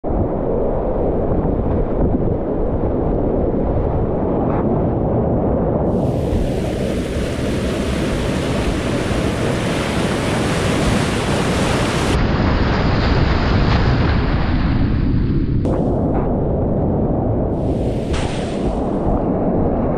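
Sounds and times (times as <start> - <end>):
wind buffeting microphone: 0.0 - 19.9
whitewater rapids roaring: 6.0 - 12.2.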